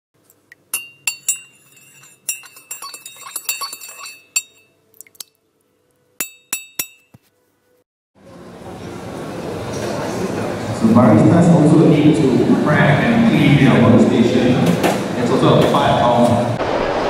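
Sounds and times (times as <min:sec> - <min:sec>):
sharp spoon taps: 0:00.7 - 0:04.7, 0:06.2 - 0:07.2
spoon clinking against a cup: 0:00.7 - 0:05.3, 0:06.2 - 0:07.2.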